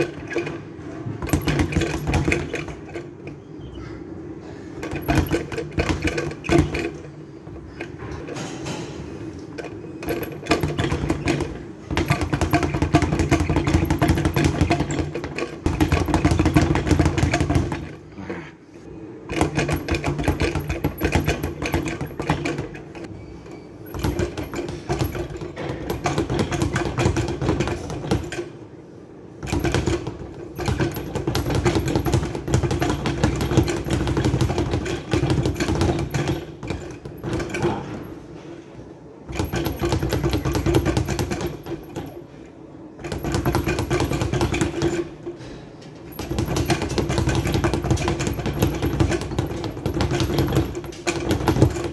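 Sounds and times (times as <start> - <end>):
speed bag drumming: 1.2 - 3.0, 4.8 - 7.0, 10.0 - 18.0, 19.3 - 23.1, 23.9 - 28.4, 29.4 - 38.0, 39.3 - 42.2, 43.0 - 45.2, 46.1 - 51.9.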